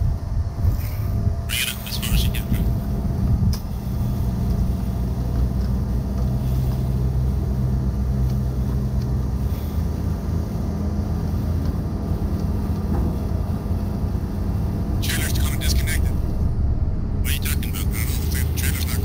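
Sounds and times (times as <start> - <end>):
wind buffeting microphone: 0.0 - 1.5, 2.5 - 8.0
diesel truck engine running: 0.0 - 19.0.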